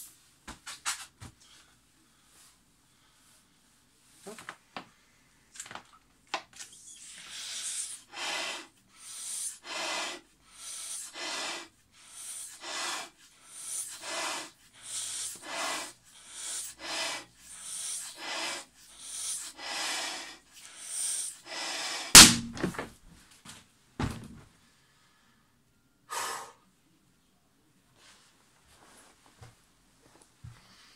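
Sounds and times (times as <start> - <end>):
person blowing up balloon: 6.7 - 22.7
balloon bursting with loud bang: 22.1 - 22.9
dull thump: 22.2 - 22.9, 24.0 - 24.4.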